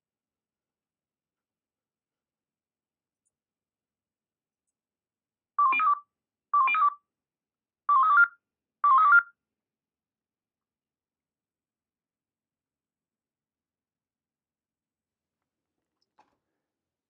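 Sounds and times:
radio alert beeps: 0:05.6 - 0:06.0, 0:06.6 - 0:07.0.

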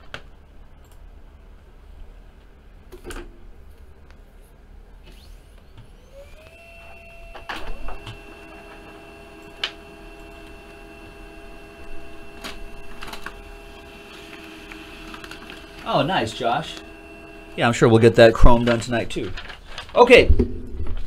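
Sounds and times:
printer motor whine: 0:05.0 - 0:19.6
printer clicks and clunks: 0:07.3 - 0:17.6.

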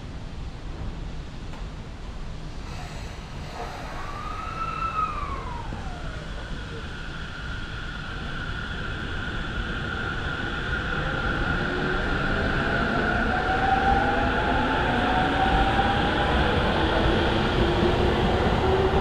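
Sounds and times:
electric train motor whine: 0:02.6 - 0:09.0.

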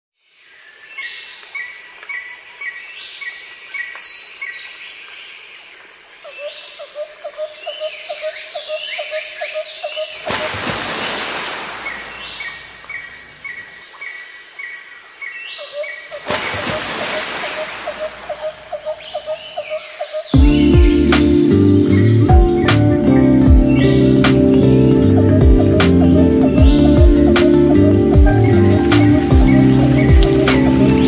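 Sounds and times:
birds singing and calling: 0:06.3 - 0:31.0.

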